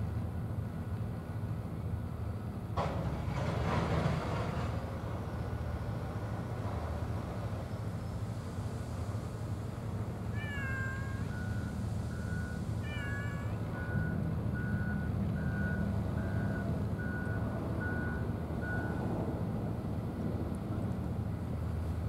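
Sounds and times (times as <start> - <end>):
engine low rumble: 0.0 - 22.0
cat meowing: 10.3 - 11.7, 12.8 - 13.8
reversing alarm beeping: 11.1 - 19.1.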